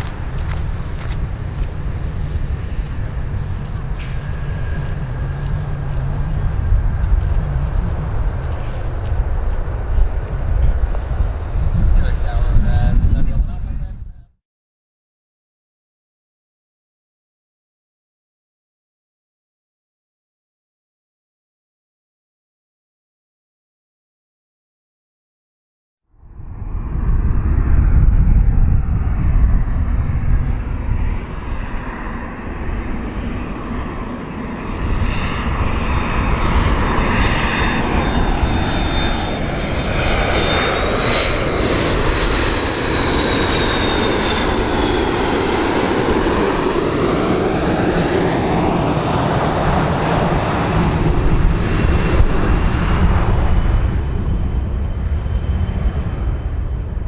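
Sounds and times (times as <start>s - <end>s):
jet airliner passing close: 0.0s - 14.3s, 26.1s - 57.0s.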